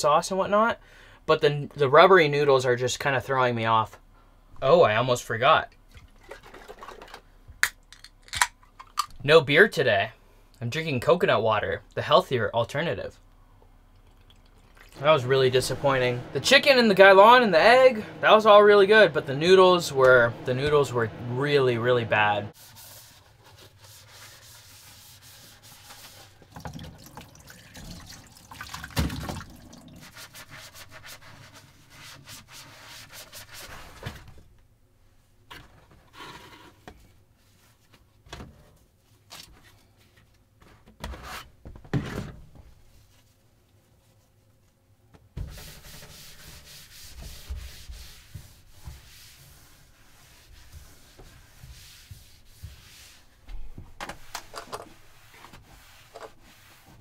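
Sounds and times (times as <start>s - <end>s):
wiping wooden countertop: 22.5s - 26.6s, 30.0s - 34.0s, 45.4s - 57.0s
dishes scrubbed in metal sink: 45.5s - 53.3s.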